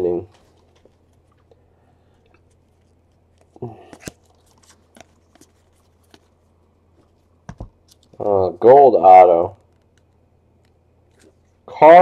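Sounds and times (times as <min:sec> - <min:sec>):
trading cards flipping and rustling: 0:00.3 - 0:01.6, 0:02.2 - 0:08.2, 0:09.6 - 0:11.6.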